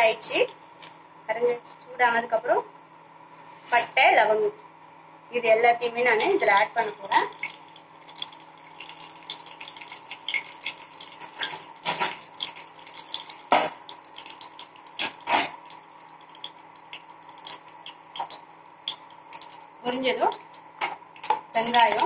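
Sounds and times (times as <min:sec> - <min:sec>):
faint steady hum: 0:00.0 - 0:22.0
spices frying in hot oil: 0:05.8 - 0:22.0.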